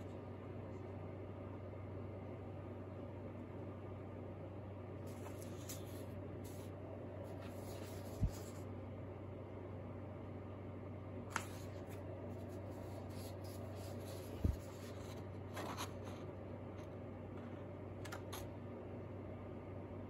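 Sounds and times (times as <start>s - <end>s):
steady low hum: 0.0s - 20.0s
paper rustling: 5.1s - 8.6s, 11.3s - 16.3s.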